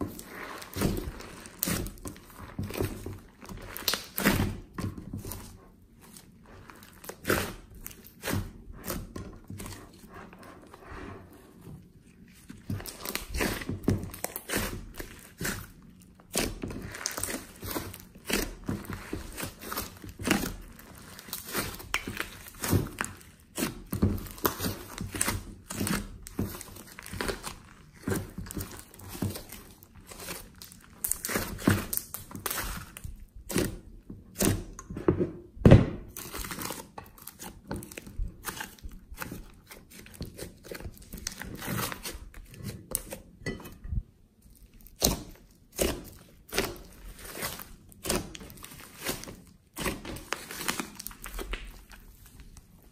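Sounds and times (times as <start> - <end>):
slime squishing and popping: 0.1 - 5.5, 12.6 - 34.8, 36.0 - 43.1, 44.5 - 52.4.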